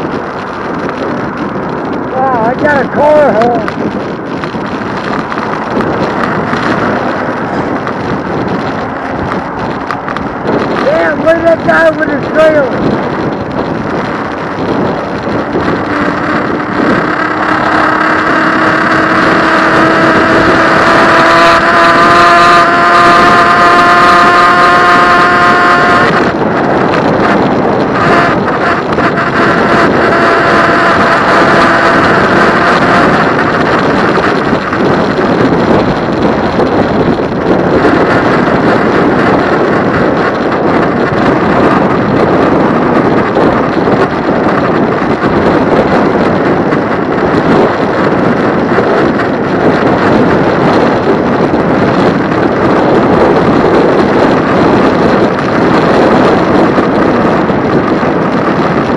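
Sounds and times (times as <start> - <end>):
wind rushing over microphone: 0.0 - 58.9
pitched horn tone: 15.1 - 26.6, 27.2 - 34.4.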